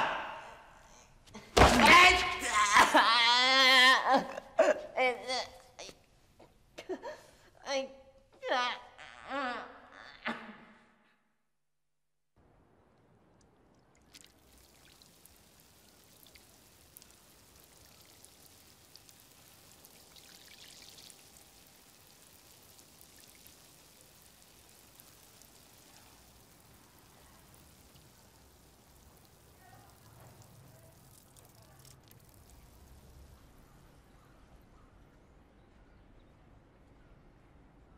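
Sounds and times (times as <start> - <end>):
small drips: 12.9 - 34.6
water sprinkling onto soil and leaves: 14.0 - 34.3.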